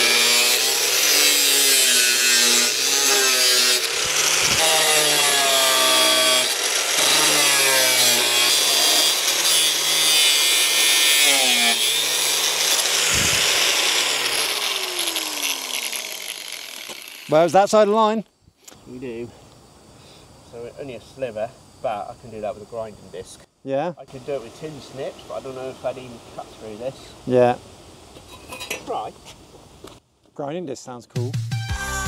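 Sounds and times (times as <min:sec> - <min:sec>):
angle grinder cutting steel: 0:00.0 - 0:17.5.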